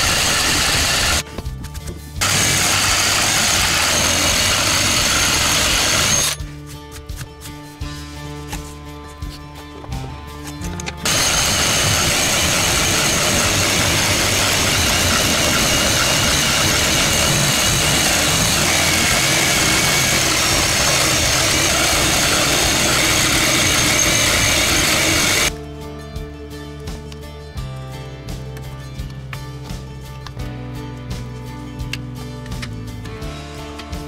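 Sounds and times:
electric power tool motor whining: 0:00.0 - 0:01.2, 0:02.2 - 0:06.4, 0:11.0 - 0:25.5.

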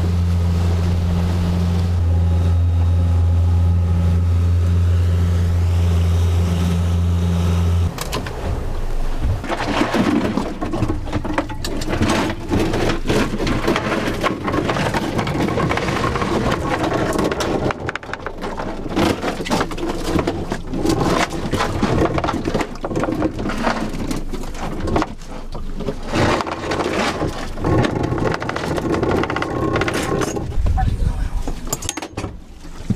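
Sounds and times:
anchor chain rattling: 0:09.8 - 0:30.8, 0:31.5 - 0:32.3
wind on microphone: 0:30.4 - 0:31.7.

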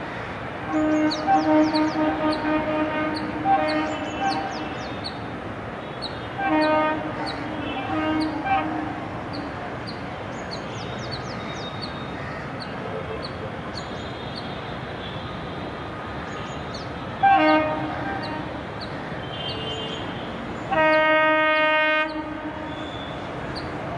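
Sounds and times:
running train noise: 0:00.0 - 0:23.9
train horn blasts: 0:00.7 - 0:04.9, 0:06.4 - 0:09.3, 0:17.2 - 0:18.6, 0:19.3 - 0:23.3.

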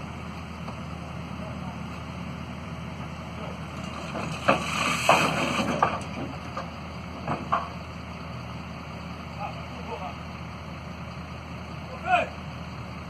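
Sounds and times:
heavy diesel engine running: 0:00.0 - 0:13.0
heavy metal clanks and scraping: 0:03.8 - 0:07.8.

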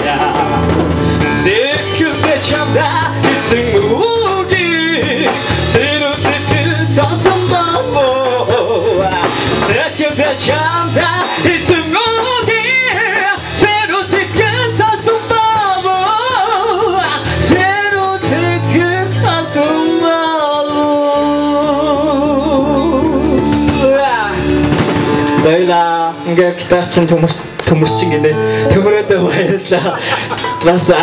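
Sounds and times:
person singing: 0:00.0 - 0:24.5
drum kit: 0:00.0 - 0:31.0.

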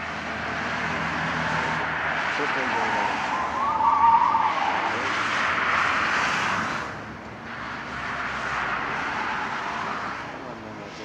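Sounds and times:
car engine under load: 0:00.0 - 0:11.0
tyres squealing: 0:01.4 - 0:05.8.

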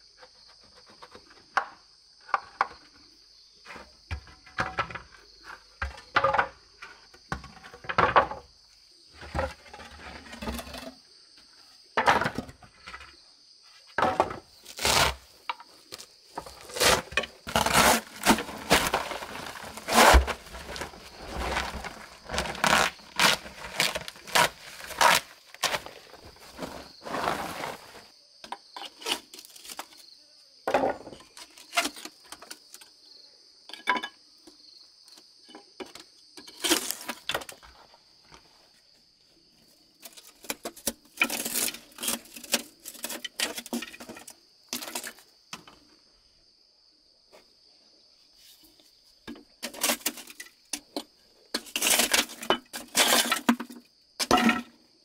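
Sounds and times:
high-pitched insect chorus: 0:00.0 - 0:38.4
scraping on bricks: 0:09.1 - 0:11.0, 0:13.9 - 0:28.1, 0:35.9 - 0:37.9, 0:40.0 - 0:45.7, 0:49.3 - 0:54.8.

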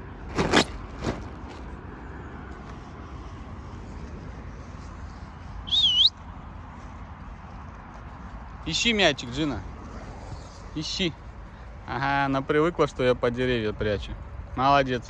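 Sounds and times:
warbling whistle: 0:05.6 - 0:06.2.

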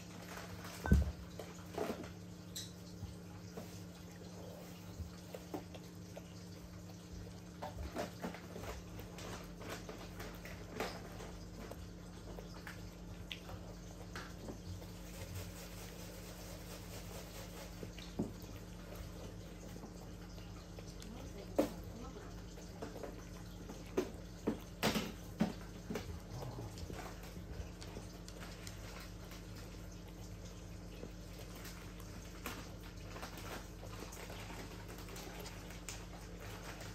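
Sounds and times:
dog eating from a bowl: 0:00.0 - 0:36.9.

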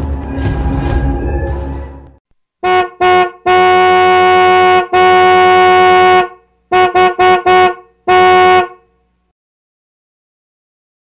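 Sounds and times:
car horn honking: 0:02.6 - 0:08.9.

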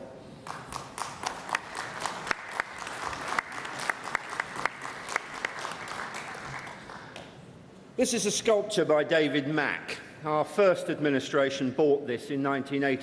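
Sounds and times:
audience applauding: 0:00.4 - 0:07.3.

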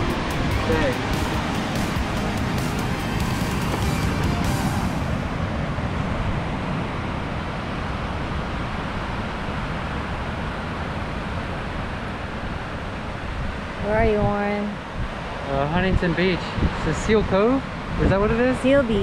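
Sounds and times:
ocean surf breaking: 0:00.0 - 0:14.0
wind: 0:00.0 - 0:19.0.

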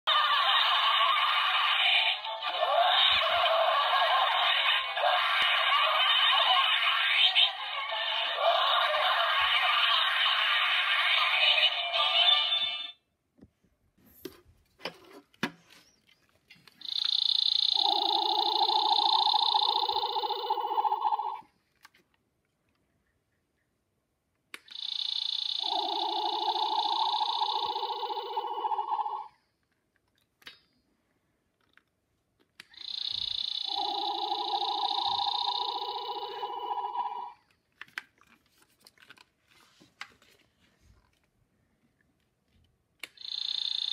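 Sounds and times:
electronic toy song: 0:00.1 - 0:13.0, 0:16.8 - 0:21.5, 0:24.7 - 0:29.4, 0:32.8 - 0:37.4, 0:43.2 - 0:43.9
toy electronic tone and buzz: 0:00.1 - 0:13.0, 0:16.8 - 0:21.5, 0:24.7 - 0:29.3, 0:32.7 - 0:37.4, 0:43.1 - 0:43.9.

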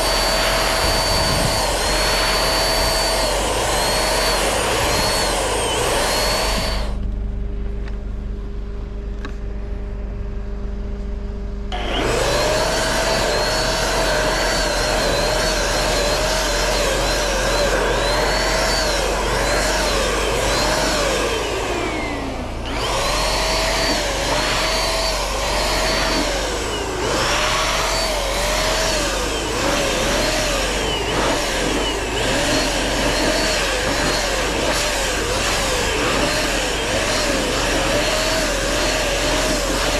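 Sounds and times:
low hum: 0:00.0 - 0:15.4
electric paint sprayer whine: 0:00.0 - 0:39.9.

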